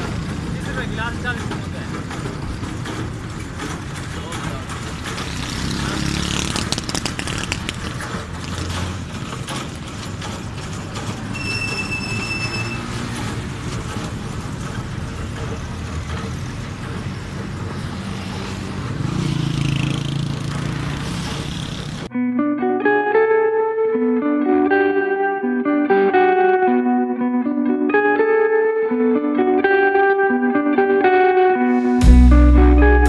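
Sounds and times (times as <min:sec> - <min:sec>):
loud engine drone: 0:00.0 - 0:03.0, 0:03.6 - 0:09.3, 0:10.3 - 0:22.1
motorcycle engines passing: 0:00.0 - 0:22.1.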